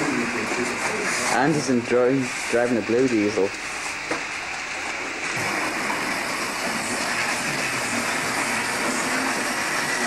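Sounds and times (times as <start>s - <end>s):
model trains rumbling on track: 5.3s - 10.0s.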